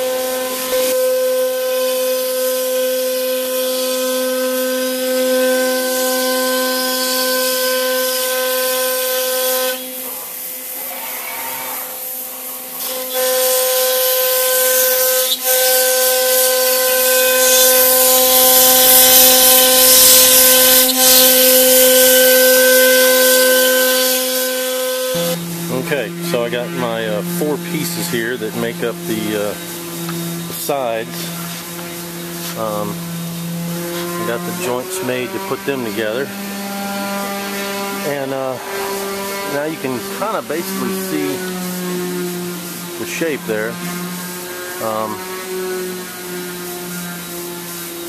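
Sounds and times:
router bit and dust extraction hiss: 0.0s - 48.0s
router spindle whine: 0.0s - 48.0s.

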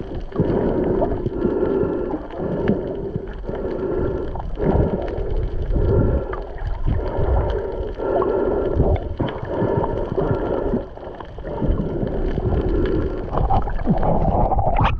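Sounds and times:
low underwater rumble: 0.0s - 14.9s
underwater gurgling and sloshing: 0.0s - 14.9s.

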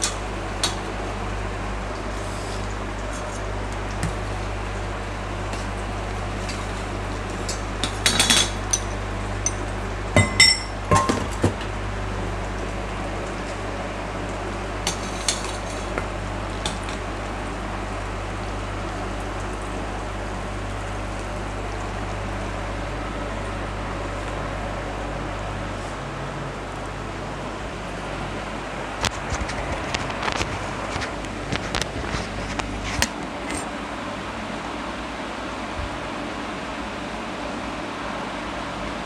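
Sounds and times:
steady low hum: 0.0s - 39.0s
metal cookware clinking: 10.2s - 11.2s.

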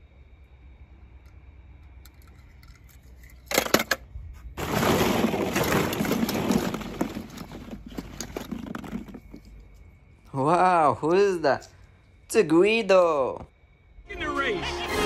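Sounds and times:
plastic balls clattering: 4.6s - 9.8s.

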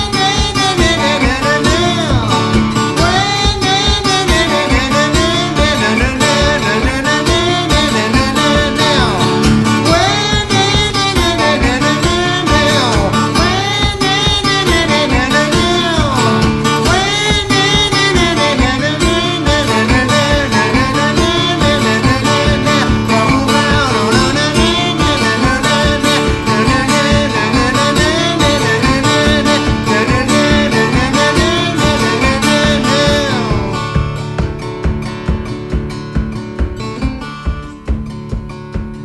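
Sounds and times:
acoustic guitar: 0.0s - 39.0s
person singing: 0.0s - 39.0s
steady beat: 0.0s - 39.0s.

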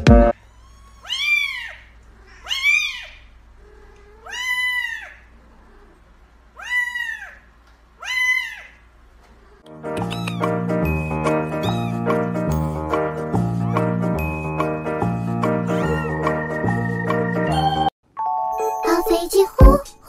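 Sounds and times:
music: 0.0s - 0.3s, 9.7s - 20.0s
kittens meowing: 0.3s - 10.7s, 11.3s - 12.7s, 13.5s - 14.0s, 15.5s - 16.4s.

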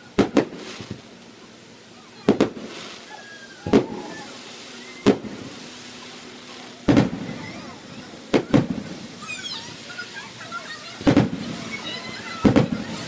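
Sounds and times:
fireworks shells booming: 0.0s - 1.3s, 2.2s - 10.4s, 11.0s - 13.0s.

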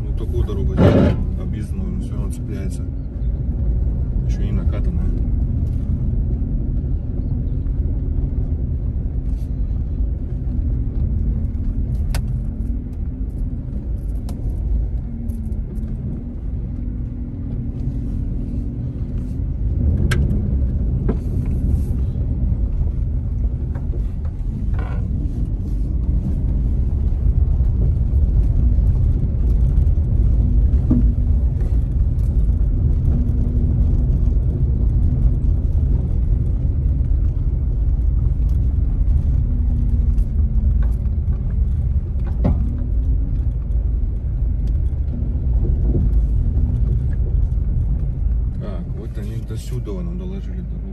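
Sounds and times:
car rumbling over gravel: 0.0s - 50.9s
gravel clicks and knocks: 2.6s - 50.2s.

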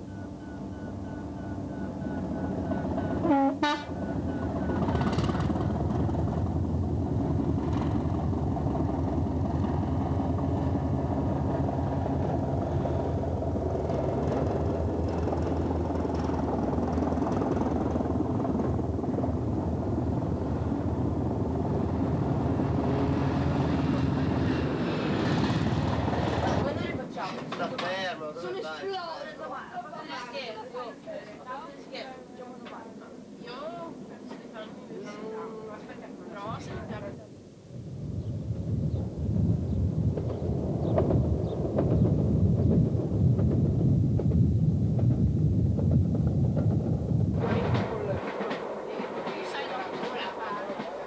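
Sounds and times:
diesel train engine running: 0.0s - 26.7s
train horn blast: 3.2s - 4.1s
train wheels clattering on rails: 4.4s - 28.0s, 40.1s - 51.0s.

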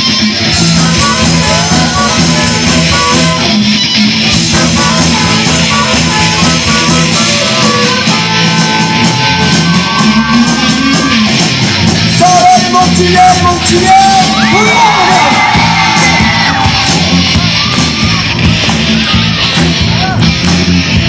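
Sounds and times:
bass guitar: 0.0s - 21.0s
drums: 0.0s - 21.0s
electric guitars: 0.0s - 21.0s
trumpet playing: 0.5s - 3.7s, 4.3s - 11.2s.

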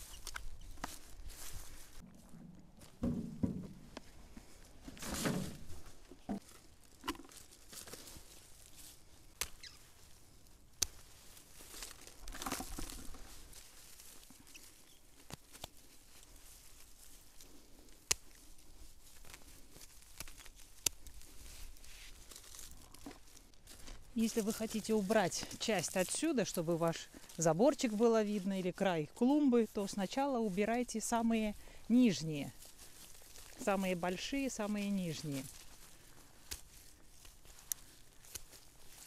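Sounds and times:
foliage rustling: 0.0s - 39.0s
pruning shears snipping: 10.7s - 11.1s, 18.0s - 18.4s, 36.4s - 36.8s.

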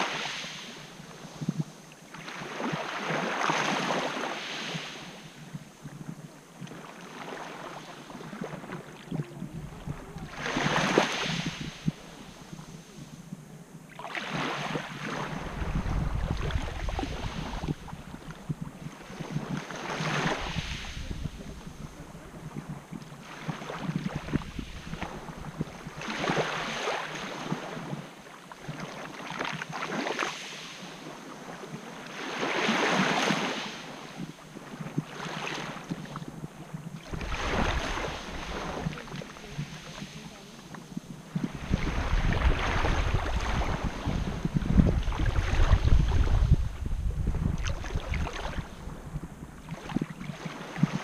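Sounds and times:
wind rumble on microphone: 0.0s - 30.1s, 30.8s - 51.0s
small waves lapping on beach: 0.0s - 51.0s.

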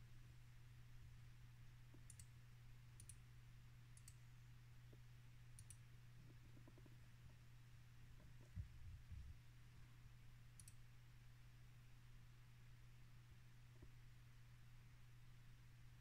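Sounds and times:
computer mouse clicks: 1.9s - 2.3s, 3.0s - 3.2s, 4.0s - 4.2s, 5.6s - 5.8s, 10.6s - 10.8s.

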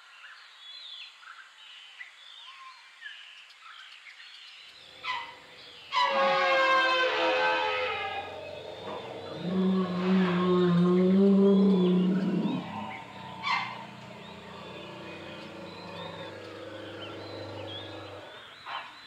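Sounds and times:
birds chirping and singing: 4.4s - 19.0s
elephant call: 5.0s - 18.5s.

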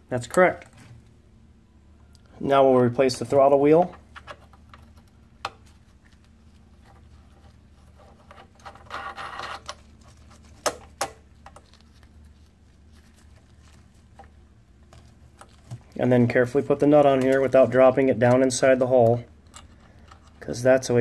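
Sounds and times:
steady low hum: 0.0s - 21.0s
rustle of parts handled: 4.0s - 20.6s.

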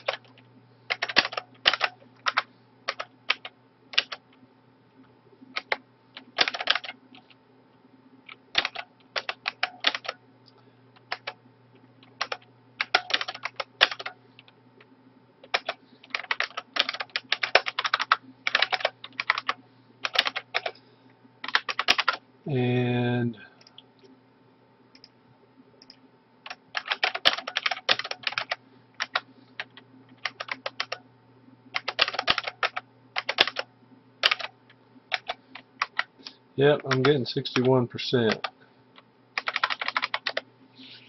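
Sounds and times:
typing on computer keyboard: 0.0s - 4.2s, 5.6s - 7.0s, 8.3s - 10.2s, 11.0s - 11.4s, 12.0s - 14.2s, 15.4s - 20.8s, 21.4s - 22.2s, 25.8s - 31.0s, 31.8s - 34.5s, 35.1s - 36.1s, 36.8s - 37.7s, 38.3s - 38.5s, 39.4s - 40.4s.

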